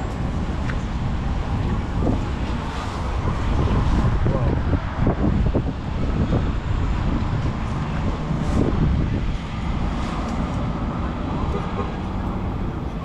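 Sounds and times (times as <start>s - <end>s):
road traffic: 0.0s - 13.0s
wind rumble on microphone: 0.0s - 13.0s.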